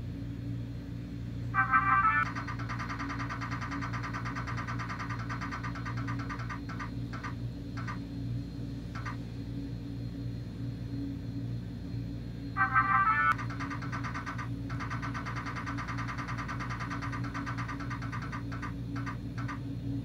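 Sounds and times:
steady low hum: 0:00.0 - 0:20.0
prize wheel ticking: 0:01.6 - 0:08.0, 0:09.0 - 0:09.2, 0:12.6 - 0:19.6.

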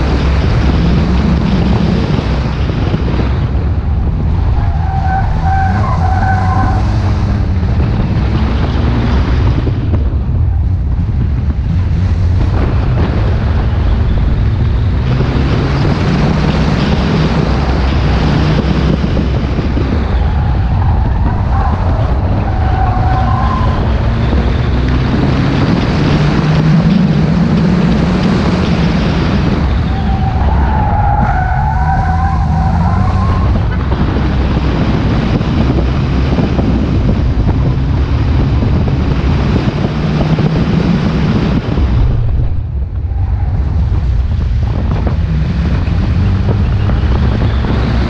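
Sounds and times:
car engine revving: 0:00.0 - 0:48.0
tyres squealing: 0:04.5 - 0:07.0, 0:19.9 - 0:25.0, 0:29.4 - 0:33.8.

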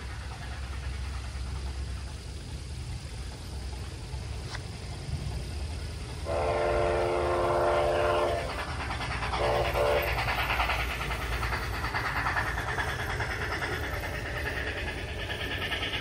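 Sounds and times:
low steady rumble: 0:00.0 - 0:16.0
model train steam whistle: 0:06.2 - 0:08.6, 0:09.4 - 0:10.2.

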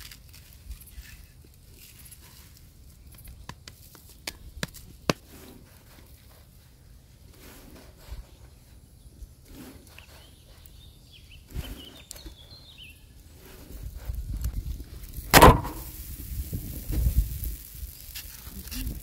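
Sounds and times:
dull thump: 0:15.3 - 0:16.0.

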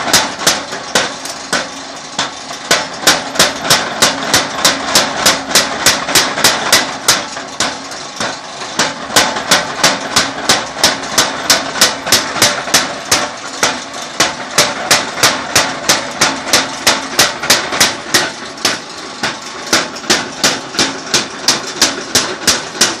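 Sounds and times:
machine hum: 0:00.0 - 0:23.0.

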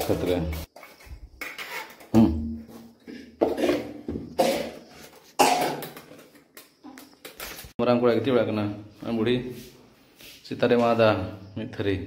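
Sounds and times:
person coughing: 0:04.4 - 0:04.8, 0:05.4 - 0:05.9.

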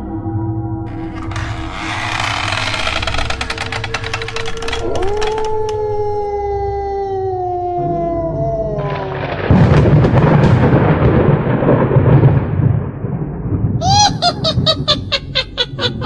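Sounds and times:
long falling howl: 0:04.8 - 0:09.5.

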